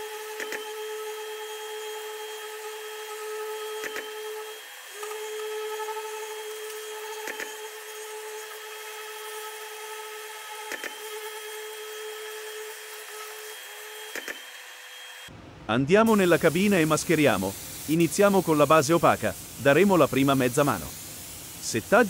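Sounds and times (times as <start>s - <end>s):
orbital sander whining: 0.0s - 15.2s.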